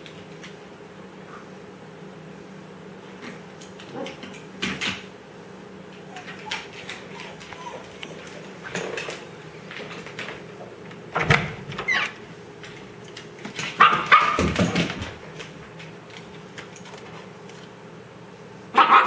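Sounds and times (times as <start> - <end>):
puppy barking and yipping: 18.8 - 19.0.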